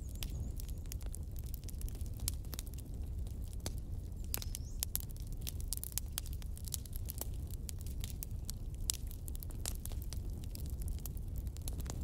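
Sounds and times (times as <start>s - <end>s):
wood fire crackling: 0.0s - 12.0s.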